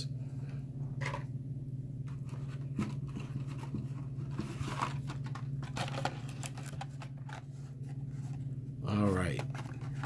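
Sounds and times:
steady low hum: 0:00.0 - 0:10.0
plastic packs and cardboard rustling: 0:02.1 - 0:10.0.

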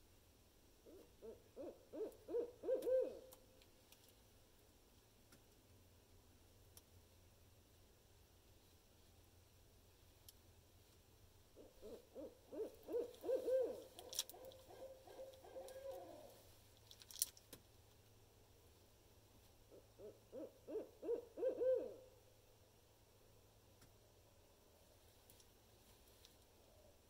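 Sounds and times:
owl hooting: 0:00.8 - 0:03.4, 0:11.6 - 0:16.4, 0:19.7 - 0:22.1.

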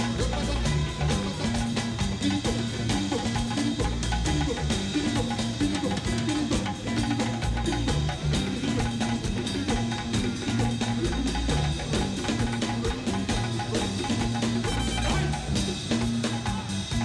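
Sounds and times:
bass guitar line: 0:00.0 - 0:17.0
drum kit and hand drums: 0:00.0 - 0:17.0.

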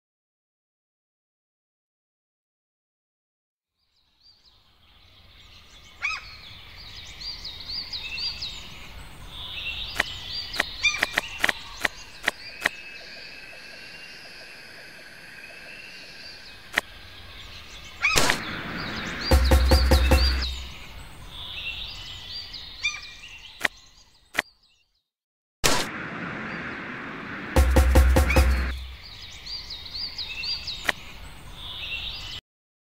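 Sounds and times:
bird chirps and calls: 0:04.3 - 0:14.5, 0:15.4 - 0:24.9, 0:27.6 - 0:32.4
steady rainforest hiss: 0:09.9 - 0:21.3.

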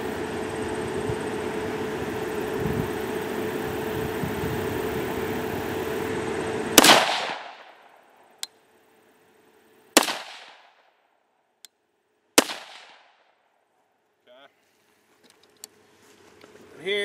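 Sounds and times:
rifle shots: 0:06.8 - 0:07.9, 0:10.0 - 0:10.9, 0:12.4 - 0:13.4.

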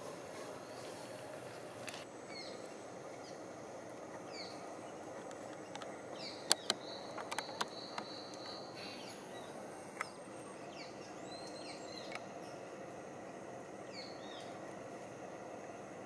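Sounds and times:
birds chirping: 0:00.0 - 0:14.9
sharp clicks: 0:05.2 - 0:08.6.

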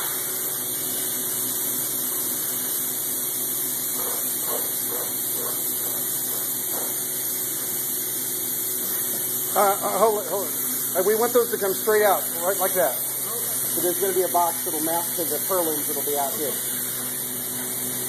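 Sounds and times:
spray foam equipment hissing: 0:00.0 - 0:18.0.

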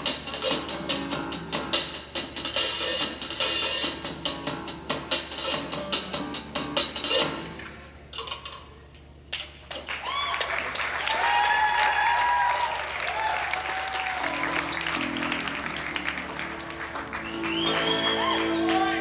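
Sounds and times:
audience clapping and cheering: 0:09.8 - 0:19.0
voices whooping: 0:09.9 - 0:16.2, 0:17.1 - 0:19.0.

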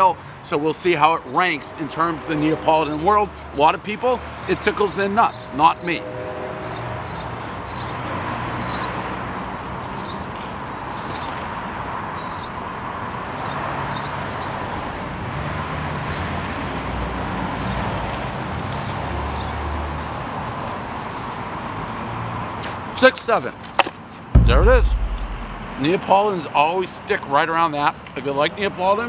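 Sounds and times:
deep vehicle rumble: 0:24.4 - 0:25.9.

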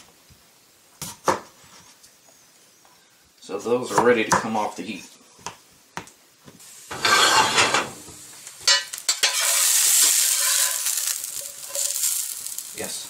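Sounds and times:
potatoes sizzling: 0:06.4 - 0:13.0
metal spatula scraping skillet: 0:06.9 - 0:12.4.

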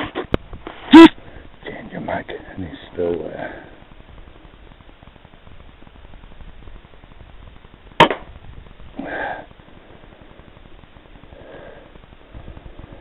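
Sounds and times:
rifle shot: 0:08.0 - 0:08.3.

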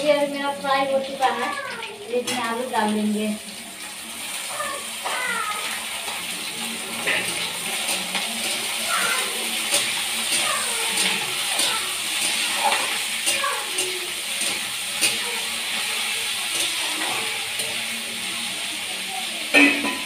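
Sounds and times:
vegetables sizzling in a pan: 0:00.0 - 0:20.0
metal spatula scraping a pan: 0:05.0 - 0:18.5, 0:19.5 - 0:20.0.

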